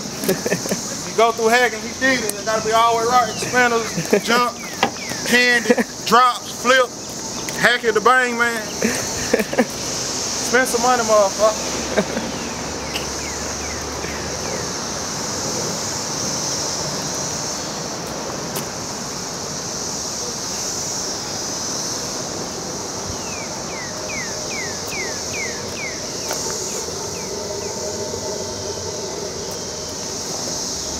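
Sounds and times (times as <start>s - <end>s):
high-pitched insect drone: 0.0s - 30.9s
bird chirping: 1.8s - 7.7s, 12.2s - 14.8s, 23.1s - 28.0s.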